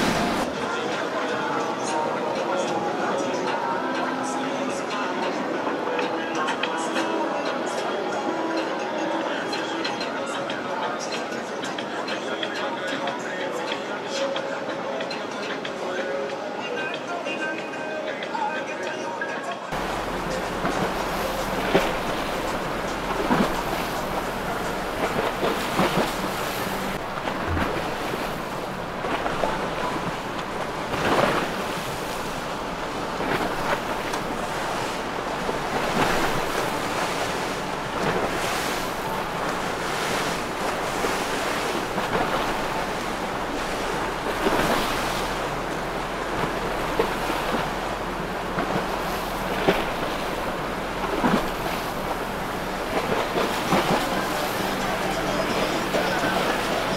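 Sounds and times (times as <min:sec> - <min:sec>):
wind buffeting microphone: 0:00.0 - 0:00.5
water splashes: 0:00.0 - 0:10.4, 0:19.7 - 0:56.9
waves washing: 0:00.0 - 0:56.9.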